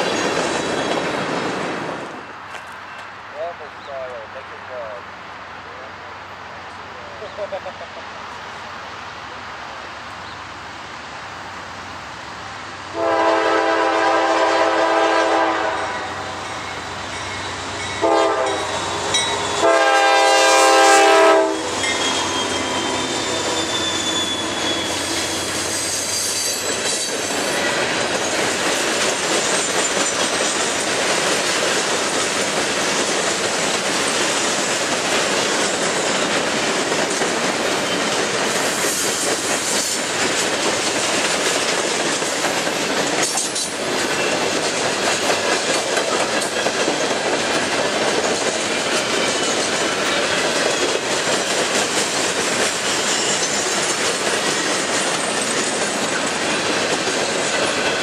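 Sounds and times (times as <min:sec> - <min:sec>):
train wheels clattering over rail joints: 0:00.0 - 0:03.1, 0:21.7 - 0:58.0
locomotive air horn: 0:12.9 - 0:16.4, 0:18.0 - 0:18.9, 0:19.5 - 0:25.6.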